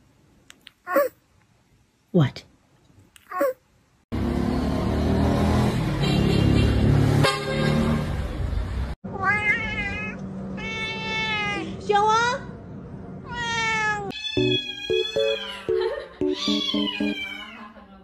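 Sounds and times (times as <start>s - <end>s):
loud street traffic: 4.1s - 14.4s
cat drawn-out wavering meows: 9.1s - 11.7s, 13.2s - 14.4s.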